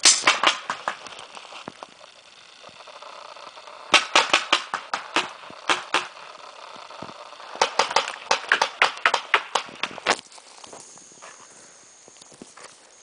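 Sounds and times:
paintball marker firing: 0.0 - 1.9, 3.9 - 10.2.

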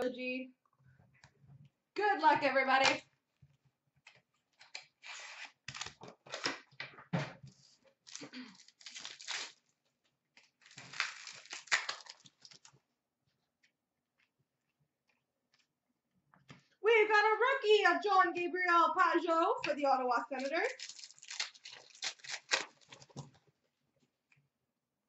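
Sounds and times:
wrapper tearing and crinkling: 4.6 - 6.5, 8.0 - 9.7, 10.4 - 12.7, 20.4 - 23.3.

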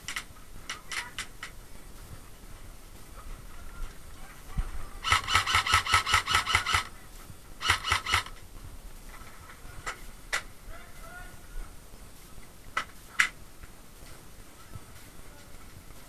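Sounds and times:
airsoft gun shots: 5.0 - 6.9, 7.6 - 8.4.

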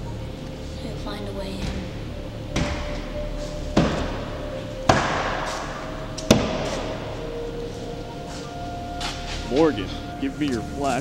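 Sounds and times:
heavy pounding on a door: 1.6 - 7.2.

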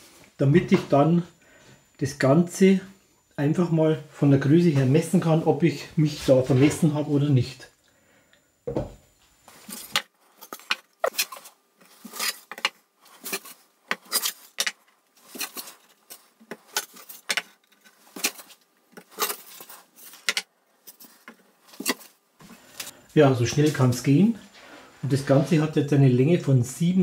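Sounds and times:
deep thump: 8.7 - 9.0.

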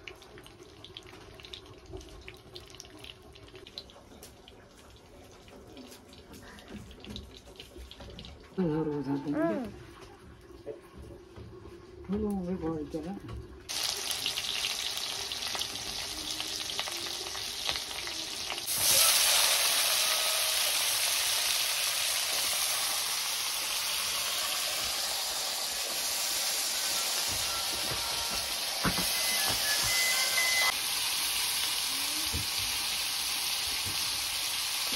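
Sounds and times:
potatoes frying in oil: 12.1 - 34.9
hot oil sizzling: 12.9 - 34.9.

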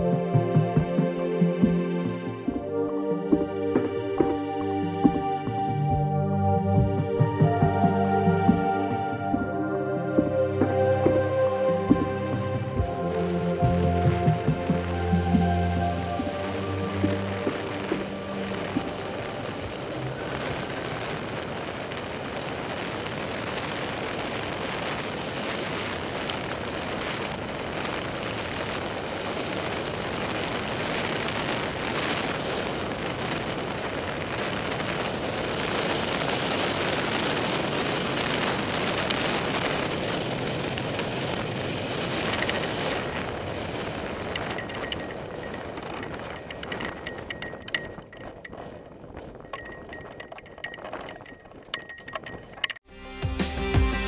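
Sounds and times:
wind rushing over microphone: 0.0 - 52.9.

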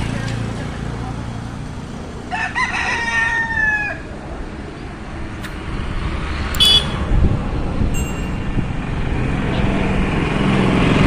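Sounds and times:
rooster crowing: 2.3 - 4.1.

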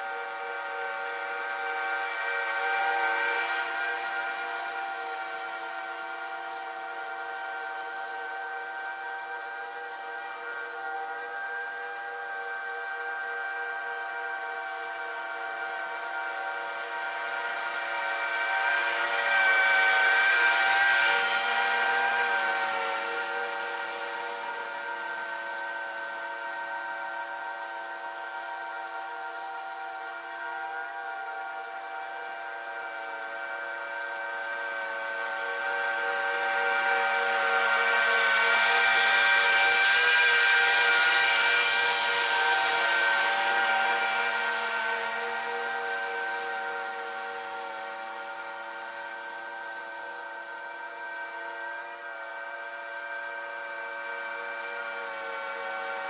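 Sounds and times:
mower whining: 0.0 - 56.0.

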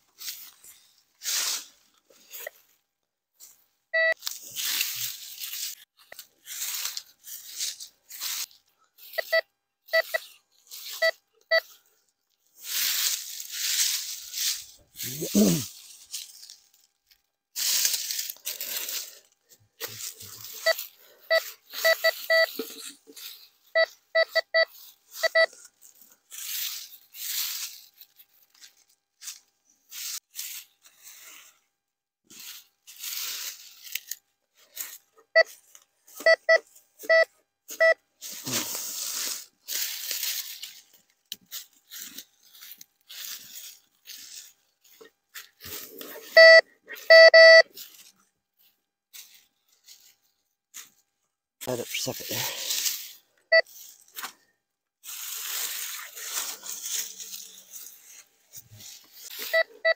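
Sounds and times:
metal detector beeps: 4.0 - 4.2, 9.0 - 11.8, 20.6 - 22.6, 23.7 - 25.5, 35.3 - 35.6, 36.2 - 38.0, 46.3 - 47.7, 53.5 - 53.7, 59.4 - 59.9
dry leaves crunching and rustling: 4.2 - 9.2, 12.4 - 23.7, 24.7 - 31.2, 32.3 - 35.9, 38.2 - 46.0, 47.7 - 51.0, 51.9 - 54.3, 55.0 - 59.6.

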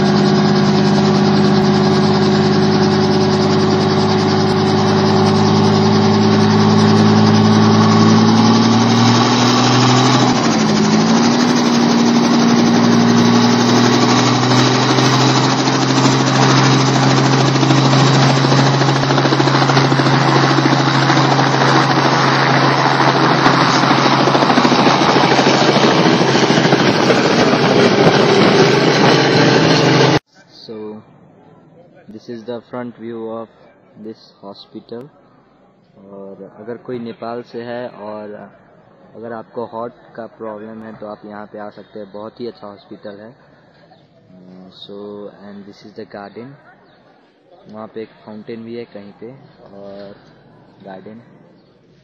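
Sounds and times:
helicopter engine and rotor: 0.0 - 30.2.

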